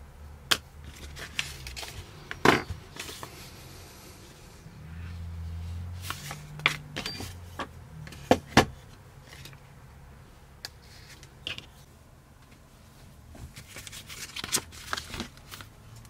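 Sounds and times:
vinyl sheet rustling: 0:00.8 - 0:03.9, 0:05.0 - 0:07.6, 0:12.8 - 0:16.0.

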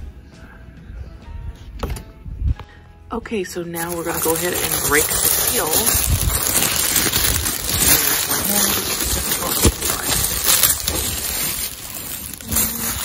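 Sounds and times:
plastic packaging crinkling: 0:03.8 - 0:13.0.

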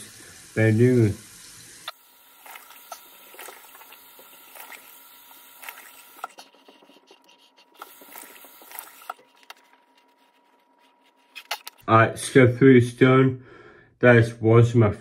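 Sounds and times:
running water hiss: 0:00.0 - 0:06.4
water splashing and dripping: 0:01.4 - 0:06.4, 0:07.8 - 0:09.2.

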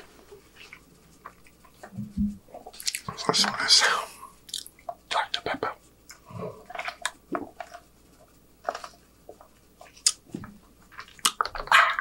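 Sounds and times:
wet mouth smacks and clicks: 0:04.5 - 0:04.7.

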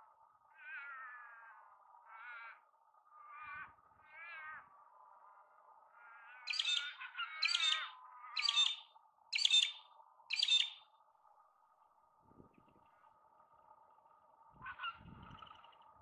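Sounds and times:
eaglets calling: 0:03.2 - 0:04.6, 0:06.0 - 0:10.8.

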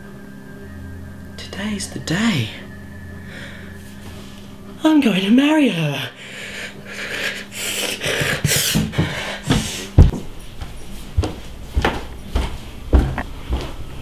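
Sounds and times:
knocks and thumps on wood: 0:08.2 - 0:10.3.

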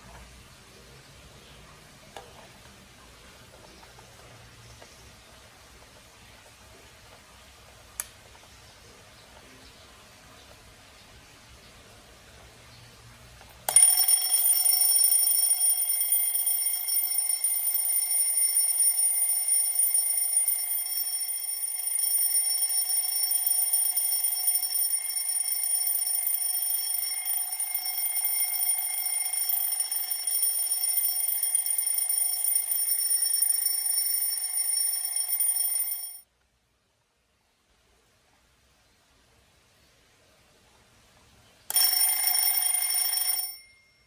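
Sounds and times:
alarm clock bells ringing: 0:13.7 - 0:36.2, 0:41.7 - 0:44.0.

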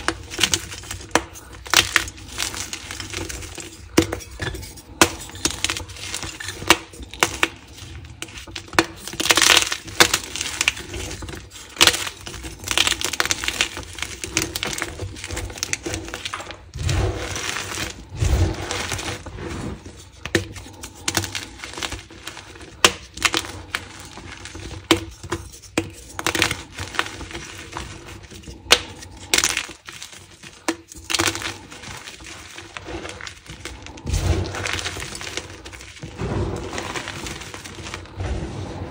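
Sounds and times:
fingers crunching chalk chunks: 0:00.0 - 0:38.3.

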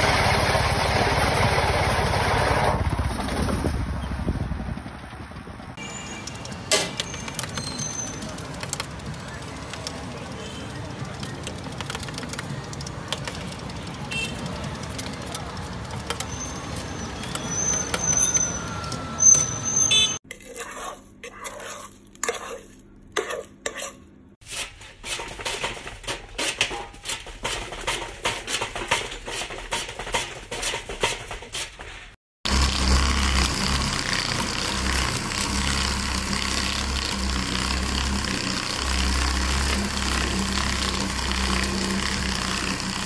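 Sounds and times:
street stall background noise: 0:00.0 - 0:43.0
lever cutter chopping sugarcane: 0:32.5 - 0:43.0.

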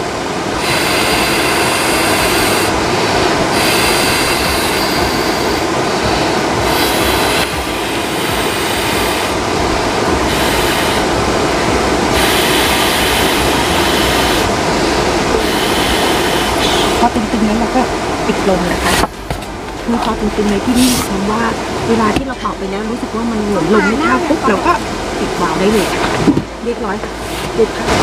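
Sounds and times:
steady rushing noise: 0:00.0 - 0:28.0
hissing breath blown into valve: 0:00.6 - 0:09.4, 0:12.1 - 0:17.0.

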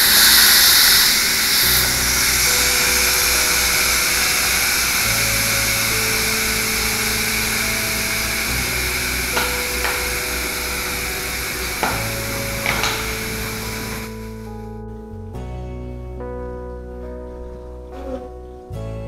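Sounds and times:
steam hissing from valve: 0:00.0 - 0:14.4
background music: 0:00.0 - 0:19.0.

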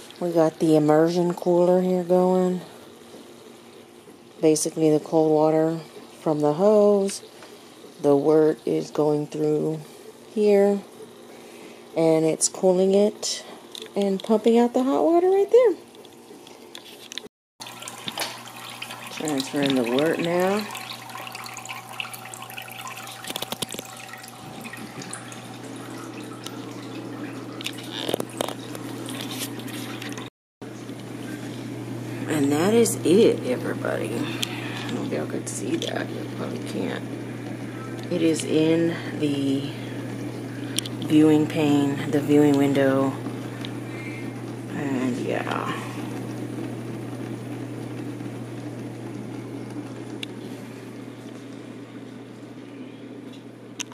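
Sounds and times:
liquid trickling into vessel: 0:17.6 - 0:30.3
steady low hum: 0:17.6 - 0:53.9.

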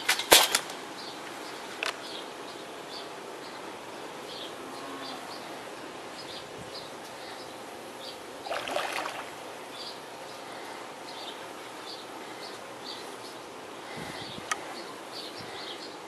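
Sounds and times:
outdoor background noise: 0:00.0 - 0:16.0
fish splashing at surface: 0:08.4 - 0:09.4.

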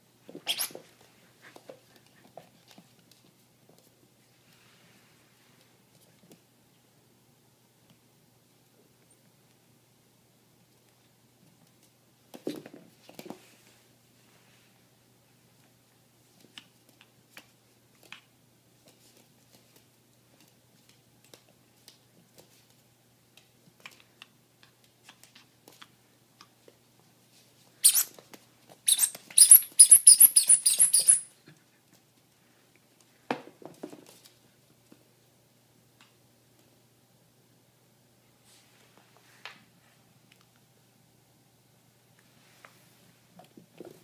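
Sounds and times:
squeak toy squeaking: 0:00.4 - 0:00.8, 0:27.8 - 0:28.1, 0:28.9 - 0:31.3.

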